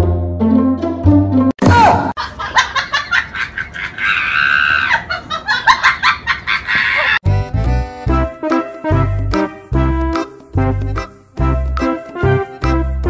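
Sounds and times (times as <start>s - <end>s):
person cackling laughter: 2.2s - 7.2s.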